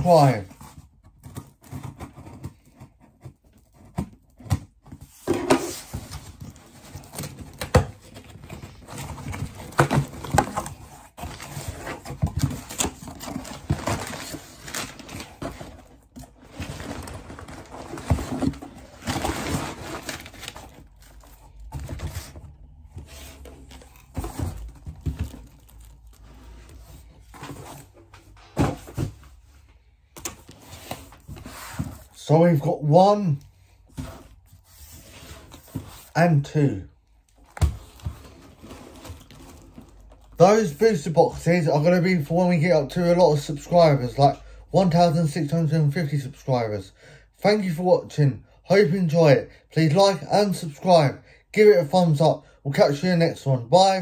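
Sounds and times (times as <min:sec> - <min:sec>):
cardboard packaging tearing: 0:07.0 - 0:22.3, 0:23.3 - 0:26.7.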